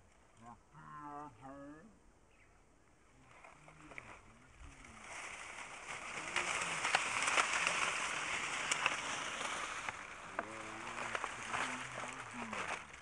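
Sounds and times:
footsteps through dry grass: 0:03.2 - 0:13.0.

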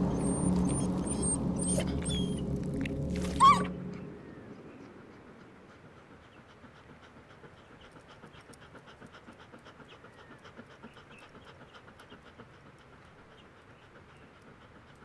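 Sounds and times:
dog panting: 0:00.0 - 0:15.0.

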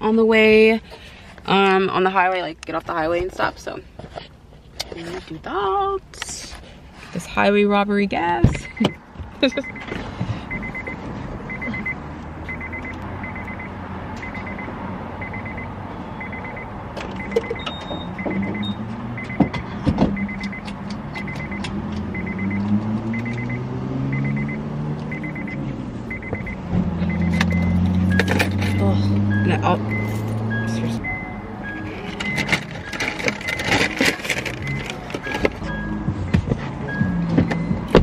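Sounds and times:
low vehicle hum: 0:00.0 - 0:38.0
car door warning chime: 0:08.4 - 0:38.0.

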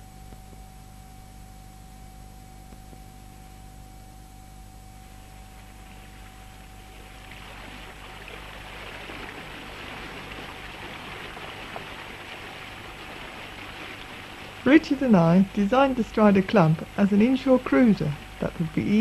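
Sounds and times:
faint hum: 0:00.0 - 0:19.0
water splashing along hull: 0:05.1 - 0:19.0.

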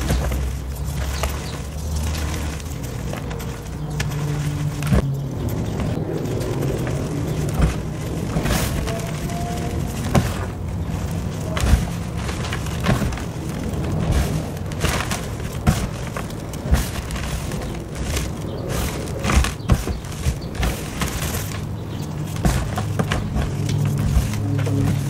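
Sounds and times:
hands crushing dry clay: 0:00.0 - 0:25.0.

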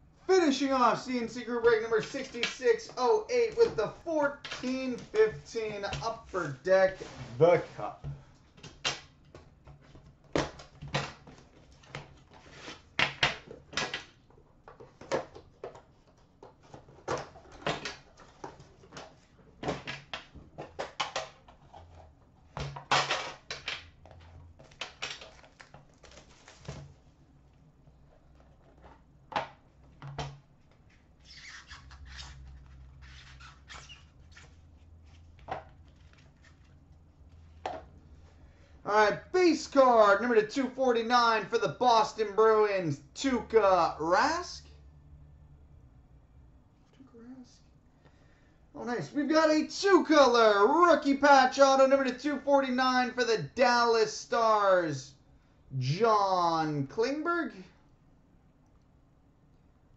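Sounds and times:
cardboard and plastic packaging rustling: 0:20.4 - 0:31.2.

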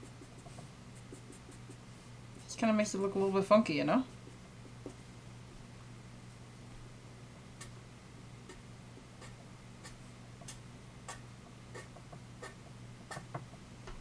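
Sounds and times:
felt-tip marker scratching on paper: 0:00.0 - 0:01.8, 0:11.1 - 0:13.2.

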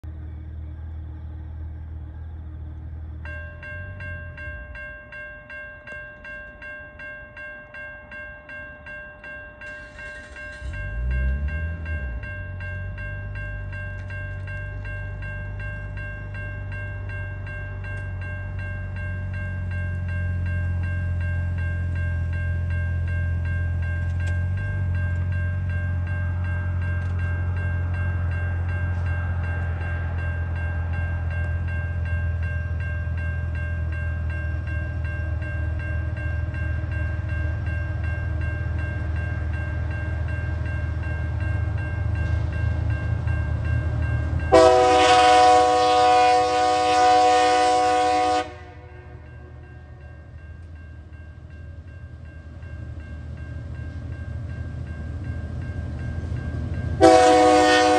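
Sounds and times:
train rumble: 0:00.0 - 0:57.9
crossing warning bell: 0:00.4 - 0:57.9
train horn blast: 0:44.5 - 0:49.6, 0:57.0 - 0:57.9.

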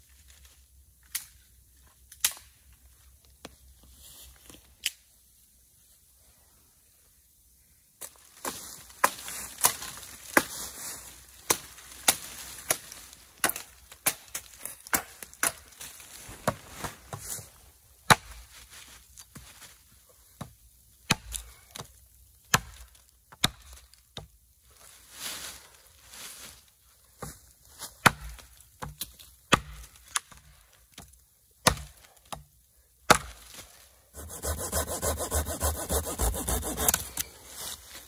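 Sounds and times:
hatchet chopping into wood: 0:28.0 - 0:29.9, 0:31.6 - 0:32.5, 0:33.1 - 0:33.4.

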